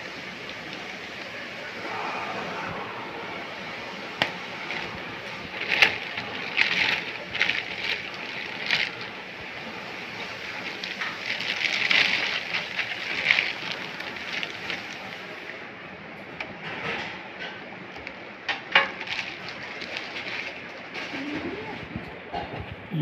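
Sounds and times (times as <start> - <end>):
plastic bag crinkling: 4.1 - 15.5, 18.0 - 21.8.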